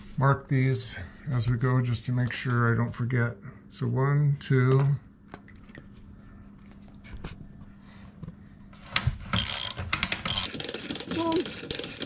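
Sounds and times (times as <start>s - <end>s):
ratchet wrench clicking rapidly: 9.4s - 12.0s.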